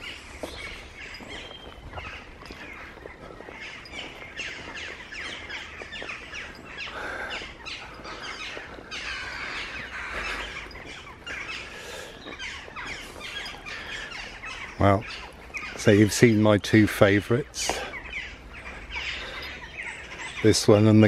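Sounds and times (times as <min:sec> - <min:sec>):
songbirds chirping: 0:00.0 - 0:21.0.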